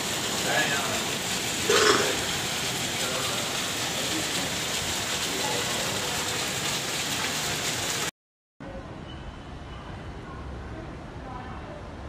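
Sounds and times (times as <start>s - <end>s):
heavy rain on pavement: 0.0s - 8.1s.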